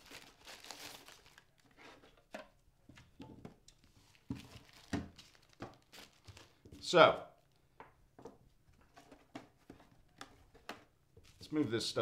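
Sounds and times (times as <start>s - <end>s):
plastic bag crinkling: 0.0s - 2.1s, 4.0s - 6.6s.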